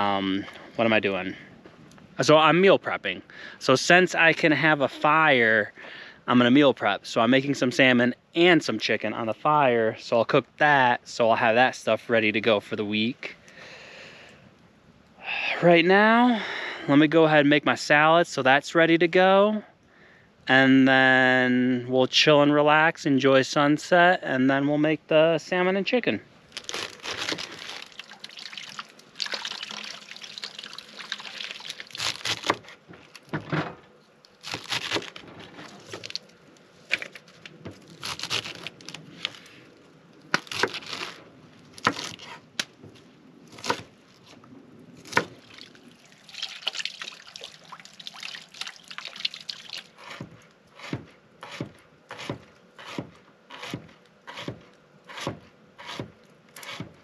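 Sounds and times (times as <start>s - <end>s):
knife cutting vegetables on a board: 50.0s - 56.9s.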